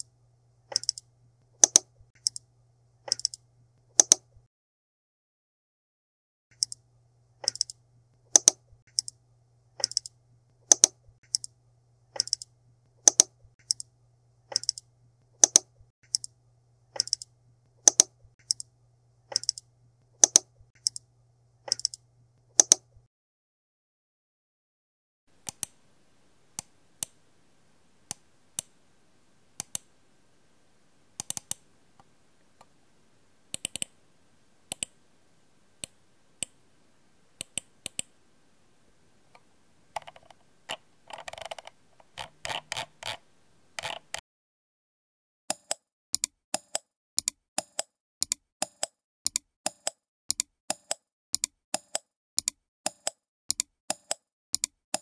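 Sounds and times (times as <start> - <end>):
computer mouse clicking: 0.7 - 2.4, 3.1 - 3.4, 4.0 - 4.3, 6.5 - 6.8, 7.4 - 9.2, 9.8 - 11.5, 12.2 - 13.9, 14.5 - 16.4, 17.0 - 18.7, 19.3 - 21.1, 21.7 - 22.0, 22.6 - 22.9, 25.4 - 25.8, 29.6 - 29.9, 31.2 - 32.7, 33.5 - 34.0, 34.7 - 35.0, 37.4 - 38.1, 40.0 - 43.2, 43.8 - 44.2, 45.5 - 55.0.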